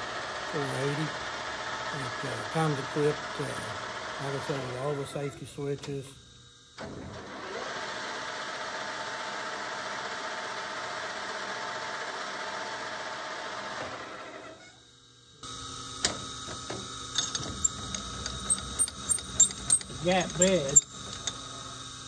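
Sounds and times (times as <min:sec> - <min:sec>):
lathe whining: 0:00.0 - 0:06.0, 0:15.4 - 0:22.0
steady mechanical sound: 0:00.0 - 0:22.0.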